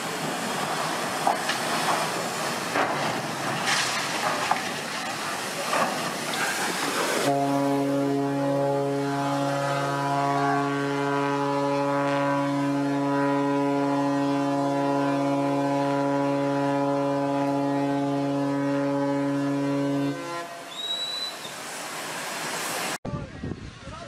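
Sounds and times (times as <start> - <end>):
ship's horn blast: 7.2 - 21.4.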